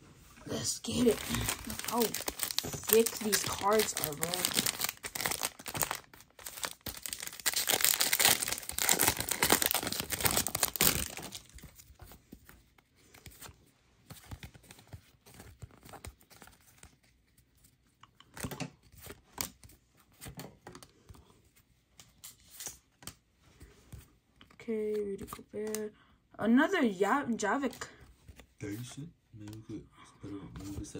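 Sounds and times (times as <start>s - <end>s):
packaging tearing with crinkling: 0.9s - 11.8s.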